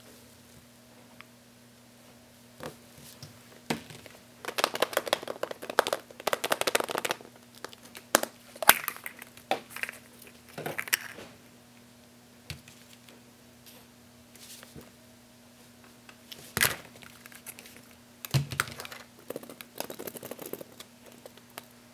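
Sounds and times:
plastic toy eggs clicking and clattering: 0:04.4 - 0:10.1, 0:17.1 - 0:21.7
crinkling rattle: 0:18.6 - 0:21.8.

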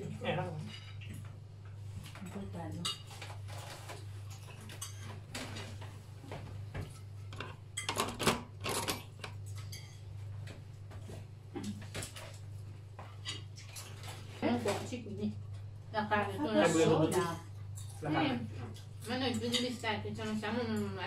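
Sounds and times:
forks clinking on plates: 0:04.3 - 0:05.2, 0:06.9 - 0:10.1.

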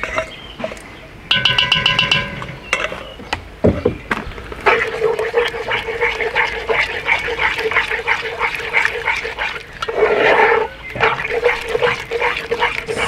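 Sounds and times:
spatula scraping a pot: 0:04.6 - 0:13.0.

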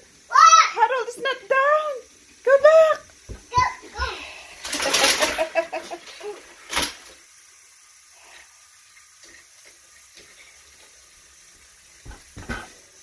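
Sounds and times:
plastic toy track clacking: 0:04.6 - 0:07.2.

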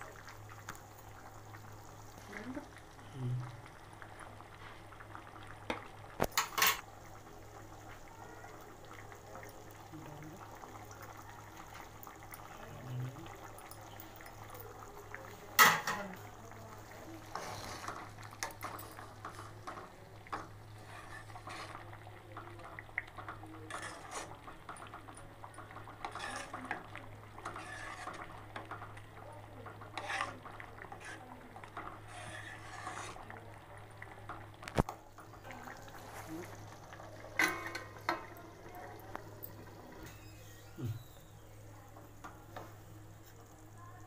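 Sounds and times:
metal spoon scraping a pan: 0:17.2 - 0:21.9, 0:23.6 - 0:24.8, 0:26.0 - 0:28.9, 0:29.8 - 0:33.3, 0:37.2 - 0:41.2.

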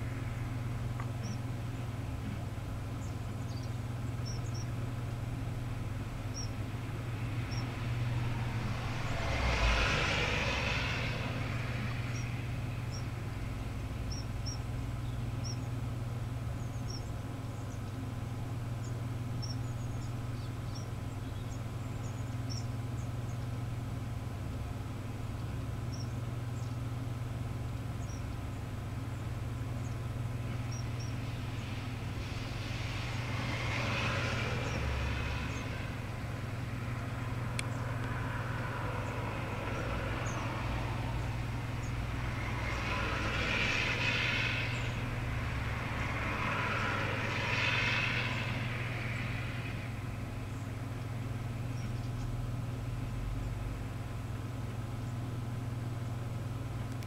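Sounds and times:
small birds calling: 0:00.0 - 0:09.6, 0:10.9 - 0:38.2, 0:38.9 - 0:46.2, 0:47.2 - 0:52.4
low hum: 0:00.0 - 0:57.0
vehicles passing: 0:00.0 - 0:57.0.

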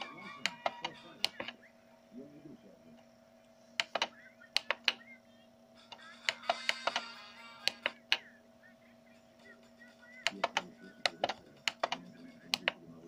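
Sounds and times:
button clicks: 0:00.0 - 0:01.6, 0:03.8 - 0:05.0, 0:05.9 - 0:08.3
low electrical hum: 0:00.0 - 0:13.0.

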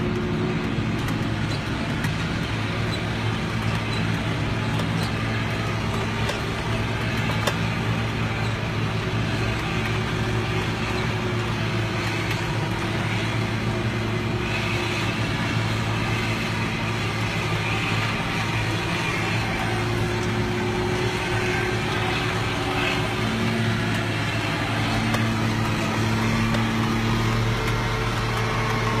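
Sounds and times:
forage harvester chopping corn: 0:00.0 - 0:29.0
tractor engine droning: 0:00.0 - 0:29.0.

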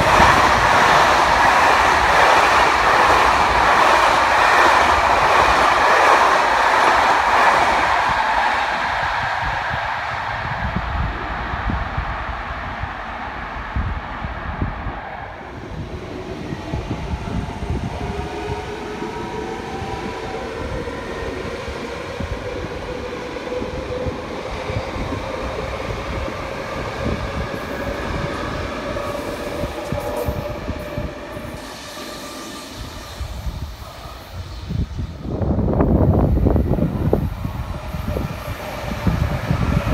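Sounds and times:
electric train passing: 0:00.0 - 0:39.9.

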